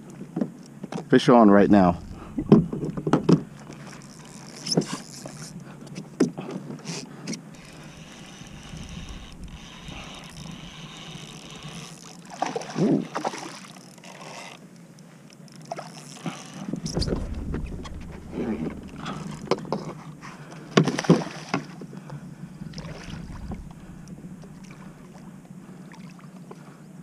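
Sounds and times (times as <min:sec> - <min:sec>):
water lapping against kayak hull: 0:00.1 - 0:26.9
rough burst: 0:01.6 - 0:04.0, 0:16.8 - 0:20.7, 0:22.6 - 0:25.4
gear knocking: 0:01.7 - 0:05.6, 0:07.6 - 0:12.0, 0:16.6 - 0:20.4, 0:23.1 - 0:25.3.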